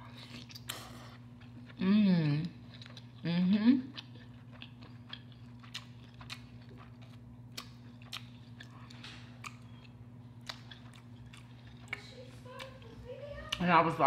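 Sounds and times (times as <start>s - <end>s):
steady low hum: 0.0s - 14.0s
close chewing with smacks: 3.9s - 13.6s.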